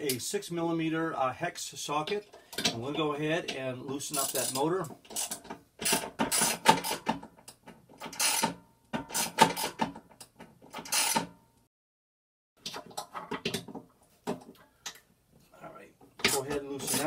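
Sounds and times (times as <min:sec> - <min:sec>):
hand ratchet clicking: 0:04.2 - 0:11.2.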